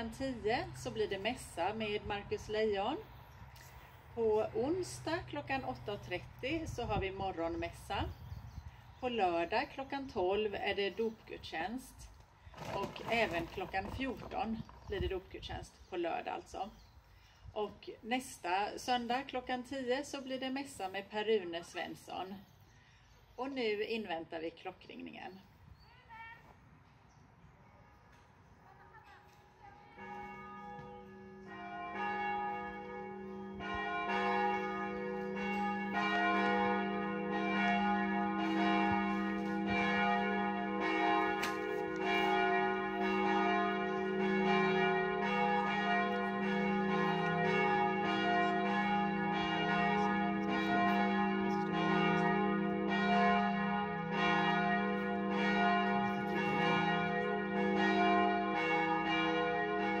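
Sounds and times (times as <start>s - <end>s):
church bells ringing: 29.8s - 60.0s.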